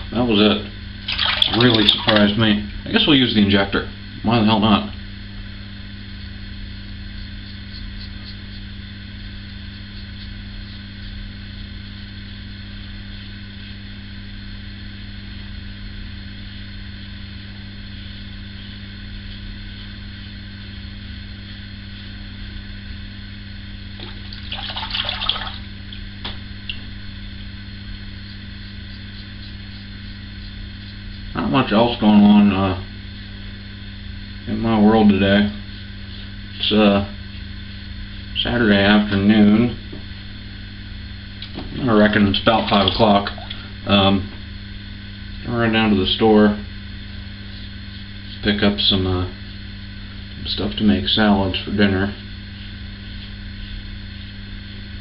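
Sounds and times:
low electrical hum: 0.0 - 55.0
razor scraping stubble: 28.2 - 31.5.

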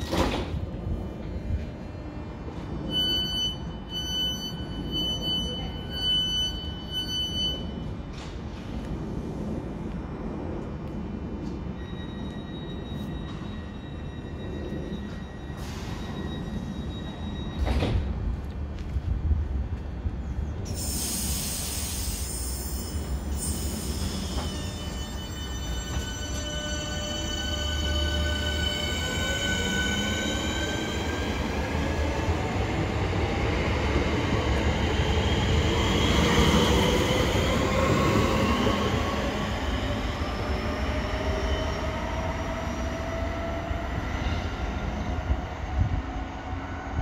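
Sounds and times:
low rumble of electric train: 0.0 - 47.0
air hiss: 20.8 - 24.4.

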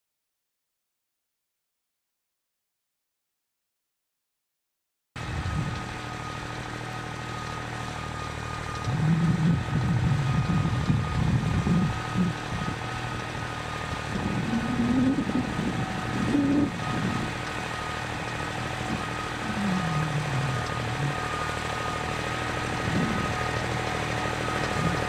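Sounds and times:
distant tractor diesel engine: 5.2 - 25.0.

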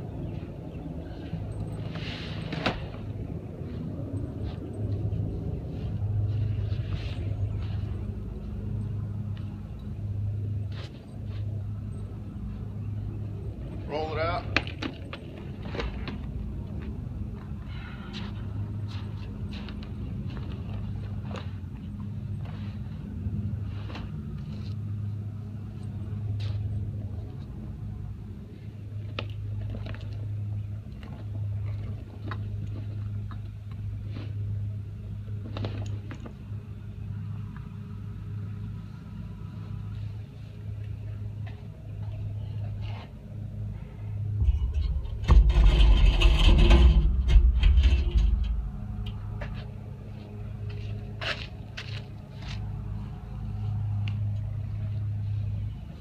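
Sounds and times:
low hum: 0.0 - 56.0
loud rushing rumble: 43.9 - 51.1.

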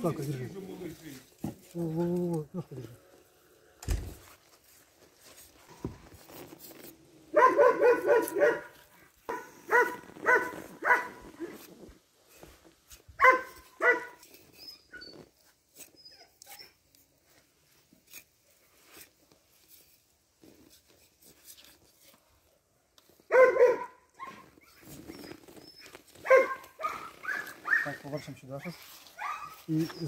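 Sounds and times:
dog barking: 7.3 - 11.5, 13.2 - 14.2, 23.3 - 24.4, 26.2 - 28.0, 29.2 - 29.6.

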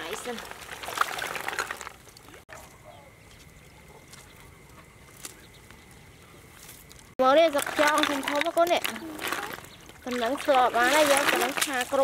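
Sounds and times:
muddy water sloshing and splashing: 0.0 - 2.7, 6.7 - 12.0.

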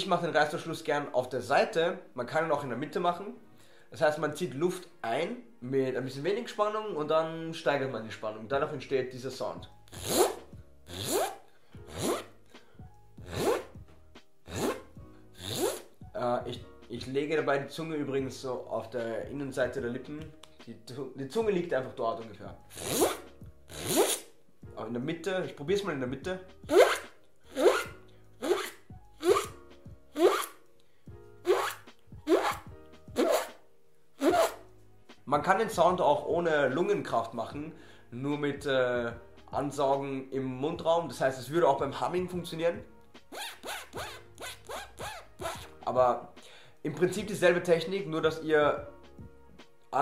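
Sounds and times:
beatboxed zipper zips: 9.9 - 12.4, 13.2 - 13.8, 14.4 - 16.0, 22.7 - 24.3, 26.6 - 30.6, 31.4 - 33.6, 34.2 - 34.7, 43.2 - 45.8.

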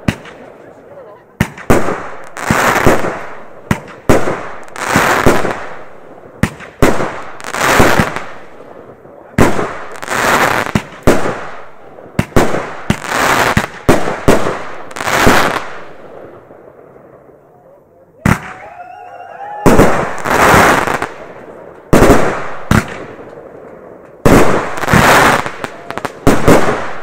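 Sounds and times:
firework launch bangs: 1.4 - 5.8, 19.6 - 21.2, 21.9 - 23.4, 24.2 - 27.0
firework bursts crackling: 1.4 - 8.8, 9.4 - 16.4, 19.4 - 23.4, 24.2 - 27.0.

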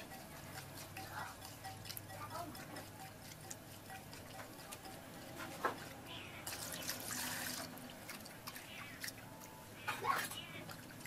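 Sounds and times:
water splashing: 5.7 - 11.0
water pouring into bowl: 6.4 - 9.4.

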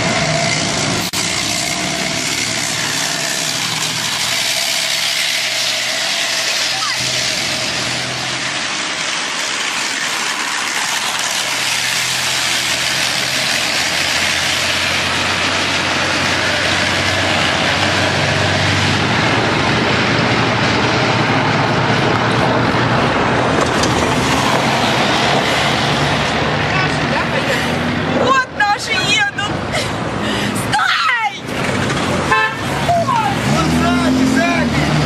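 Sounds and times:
car engine hum: 0.0 - 35.0
wind and road noise: 0.0 - 35.0.

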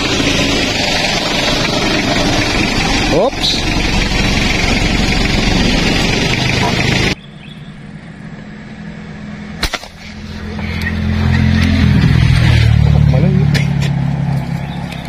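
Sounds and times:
low engine hum: 0.0 - 15.0
traffic rushing: 0.0 - 15.0
sharp crack: 9.6 - 10.9.

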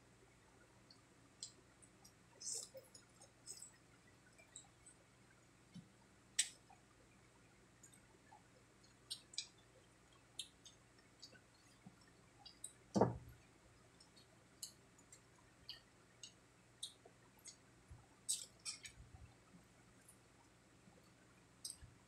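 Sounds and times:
chewing clicks and smacks: 8.8 - 12.8, 18.3 - 19.0.

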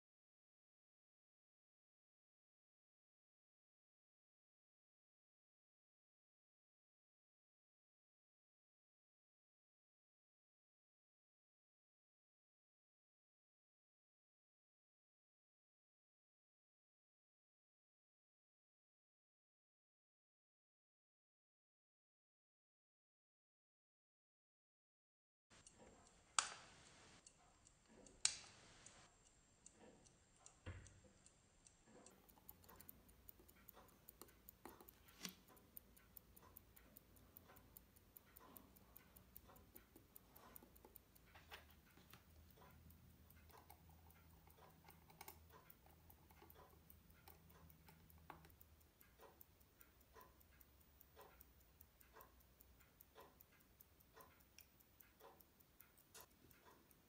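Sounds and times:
small metallic clicks and taps: 25.6 - 29.0, 29.6 - 57.0.

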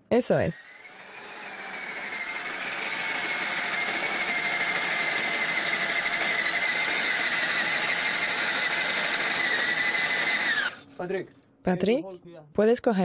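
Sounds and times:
power drill whining: 0.6 - 11.0.

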